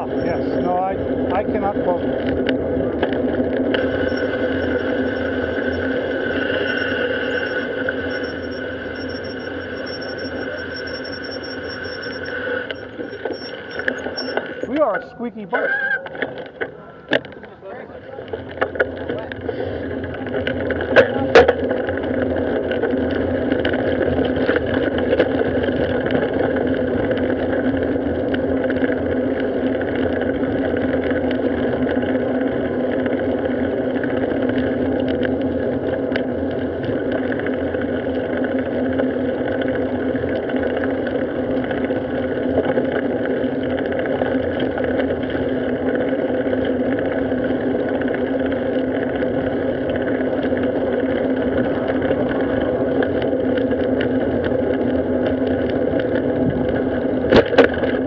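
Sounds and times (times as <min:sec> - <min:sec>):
bicycle road noise hum: 0:00.0 - 0:58.0.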